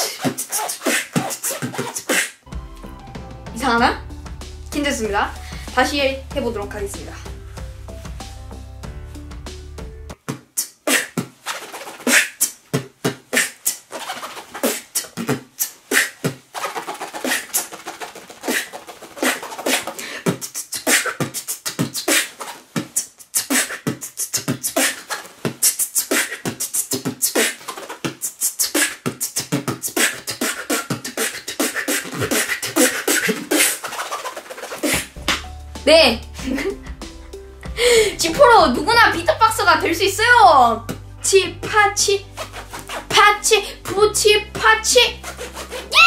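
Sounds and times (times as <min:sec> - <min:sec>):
vocal beatboxing: 0:00.0 - 0:02.4, 0:10.1 - 0:35.5, 0:40.8 - 0:46.0
zipper scratching: 0:00.0 - 0:02.4, 0:10.2 - 0:35.4, 0:41.7 - 0:46.0.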